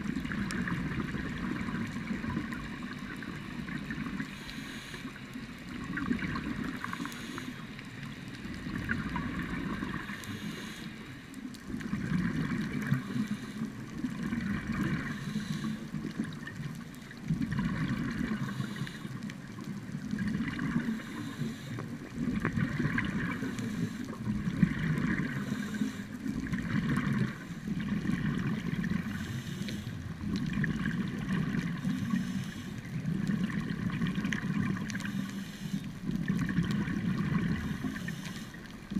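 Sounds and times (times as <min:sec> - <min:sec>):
exhaled bubbles gurgling: 0:00.0 - 0:38.9
diver breathing through regulator: 0:04.2 - 0:05.2, 0:06.8 - 0:07.7, 0:10.0 - 0:11.2, 0:12.9 - 0:13.8, 0:15.0 - 0:16.0, 0:18.3 - 0:19.2, 0:20.8 - 0:21.9, 0:23.3 - 0:24.2, 0:25.3 - 0:26.2, 0:28.8 - 0:30.1, 0:31.7 - 0:33.0, 0:34.9 - 0:36.0, 0:37.4 - 0:38.7.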